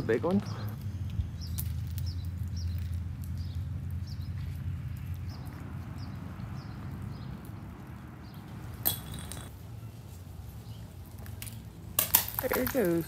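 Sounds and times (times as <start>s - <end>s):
icicle shattering: 8.7s - 9.5s.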